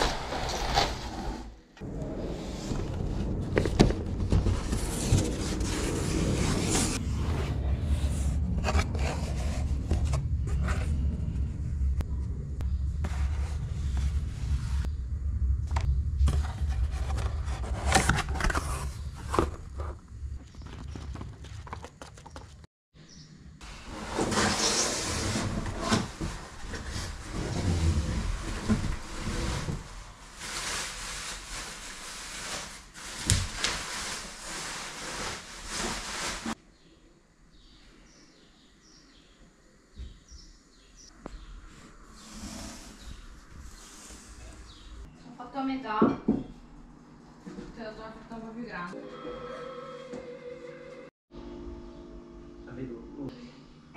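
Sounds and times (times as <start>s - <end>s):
low rumble: 1.8s - 21.4s
cardboard and plastic rustling: 2.8s - 7.0s, 15.8s - 22.6s, 23.9s - 36.6s.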